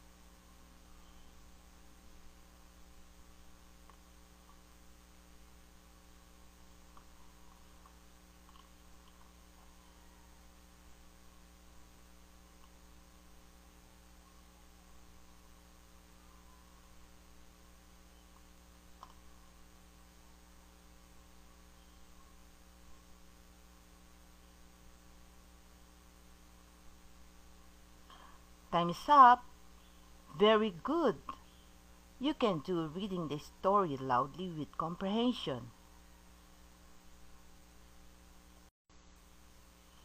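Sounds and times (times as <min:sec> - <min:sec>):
faint electrical hum: 0:00.0 - 0:40.0
faint ticks: 0:18.3 - 0:19.3.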